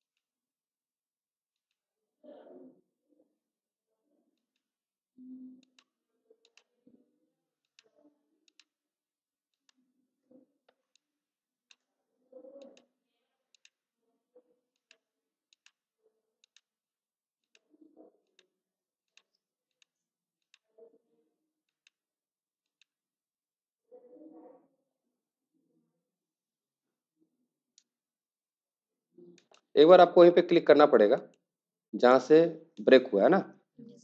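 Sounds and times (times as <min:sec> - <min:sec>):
computer mouse clicks: 0:05.6 - 0:06.8, 0:07.6 - 0:08.8, 0:12.6 - 0:12.9, 0:13.6 - 0:13.8, 0:14.8 - 0:15.8, 0:16.4 - 0:16.7, 0:29.4 - 0:29.7.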